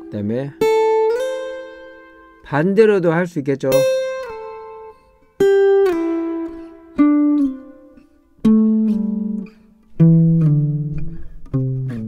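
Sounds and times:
acoustic guitar descending slides: 0:10.0 - 0:12.0.

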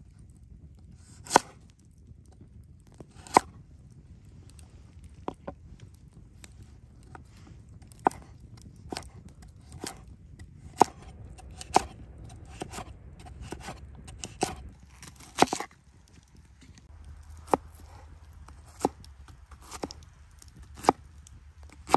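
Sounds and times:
knife chopping on wooden board: 0:07.9 - 0:08.3, 0:08.9 - 0:10.0, 0:10.7 - 0:15.7, 0:17.2 - 0:19.0, 0:19.6 - 0:21.0.

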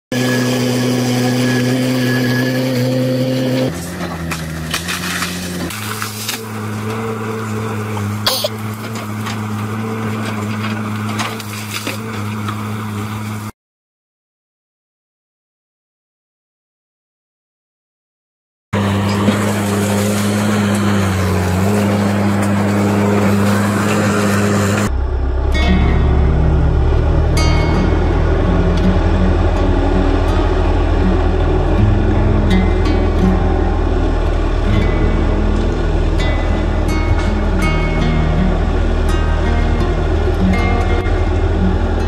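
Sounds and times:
excavator diesel engine running: 0:00.1 - 0:13.5, 0:18.8 - 0:42.0
branches cracking and snapping: 0:04.0 - 0:07.0, 0:08.7 - 0:12.6.

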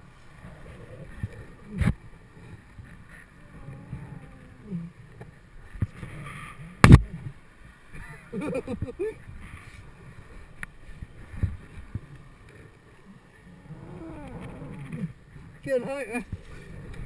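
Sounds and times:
low rumbling wind: 0:00.0 - 0:17.0
rope rubbing noise: 0:13.6 - 0:15.2.

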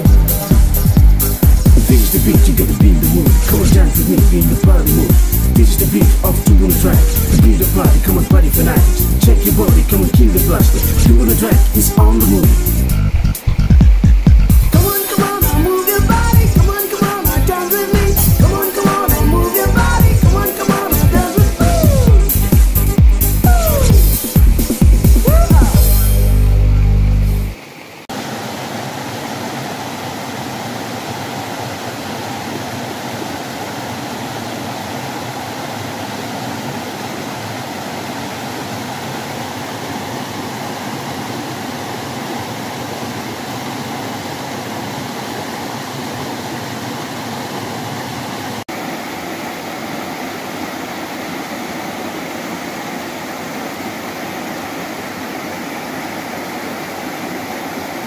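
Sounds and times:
steady rushing noise: 0:00.0 - 0:32.4.

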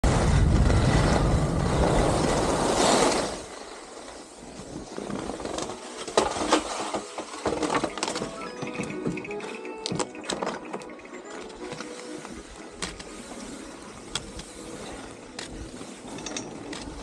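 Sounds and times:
wind buffeting microphone: 0:00.0 - 0:03.5
skis sliding on snow: 0:00.0 - 0:08.5, 0:11.3 - 0:17.0.

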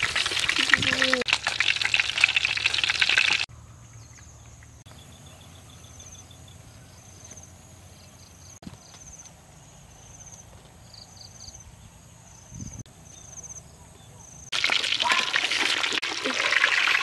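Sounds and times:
fish sizzling in a pan: 0:00.0 - 0:03.5, 0:14.6 - 0:17.0.

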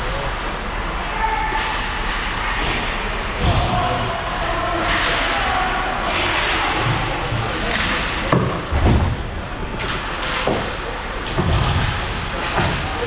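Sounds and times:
arena noise: 0:00.0 - 0:13.0
thuds against rink boards: 0:09.8 - 0:13.0.

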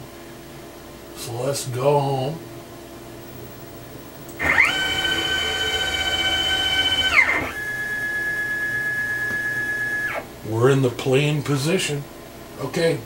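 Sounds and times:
stepper motors whining: 0:04.4 - 0:10.3.

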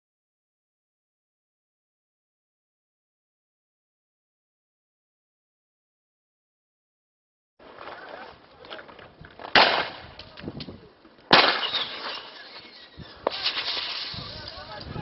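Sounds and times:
launcher shots with echo: 0:09.6 - 0:10.1, 0:11.3 - 0:12.4.

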